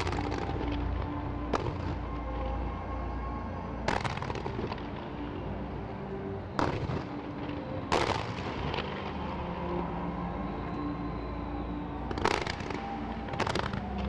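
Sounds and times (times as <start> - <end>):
fireworks crackling: 0.0 - 2.0, 3.9 - 5.0, 6.6 - 9.6, 12.1 - 14.0
fireworks bursting bangs: 3.9 - 4.8, 7.9 - 8.8, 12.1 - 12.8.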